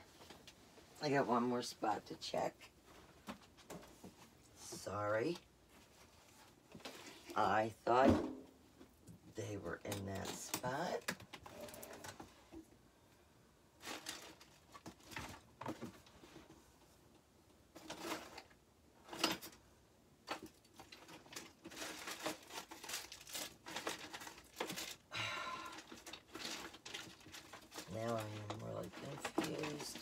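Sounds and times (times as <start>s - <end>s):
rummaging through boxes: 13.8s - 16.6s, 17.7s - 19.6s, 20.2s - 30.0s.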